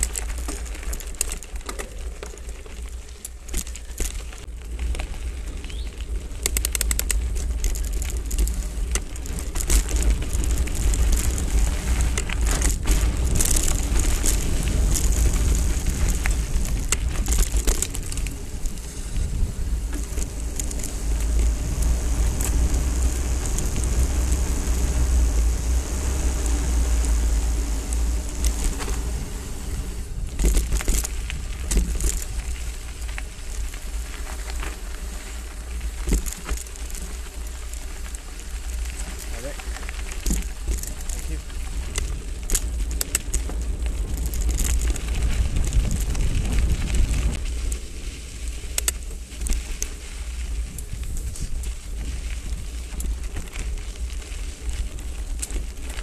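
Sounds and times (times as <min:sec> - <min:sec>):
bike clattering over bumps: 0:00.0 - 0:56.0
tyres crunching on gravel: 0:00.0 - 0:56.0
wind on microphone: 0:07.9 - 0:33.8, 0:41.2 - 0:49.5.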